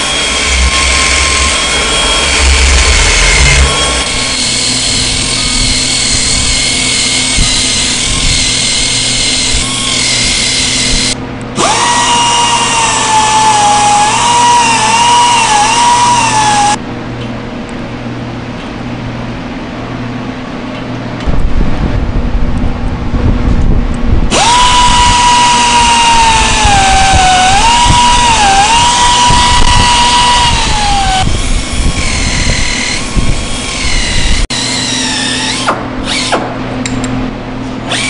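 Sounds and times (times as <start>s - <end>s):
rotary grinder whining on rubber: 0.0s - 16.8s, 24.3s - 36.3s.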